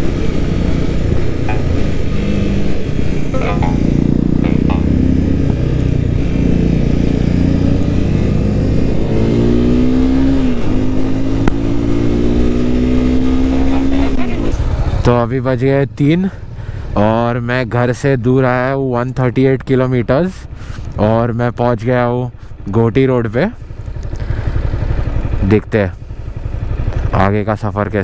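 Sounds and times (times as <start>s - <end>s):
motorcycle engine accelerating: 0.0s - 17.0s, 23.0s - 28.0s.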